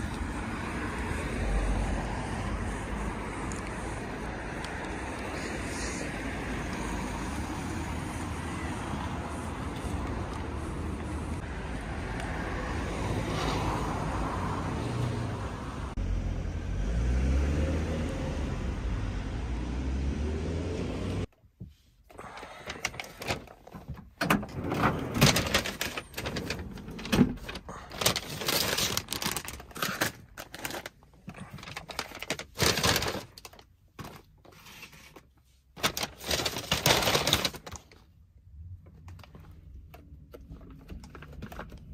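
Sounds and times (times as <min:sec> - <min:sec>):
car passing by: 0:00.2 - 0:21.3
paper bag rustling: 0:24.6 - 0:38.0
plastic packaging clacking: 0:25.1 - 0:34.4, 0:35.8 - 0:38.0.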